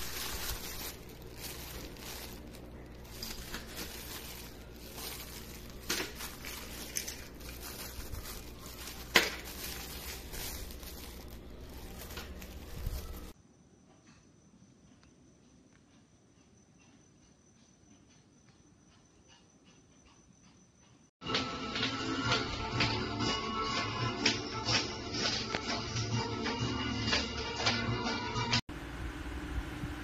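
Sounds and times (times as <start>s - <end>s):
plastic and paper crinkling: 0.0s - 13.4s
sharp crackles of plastic: 0.0s - 13.4s.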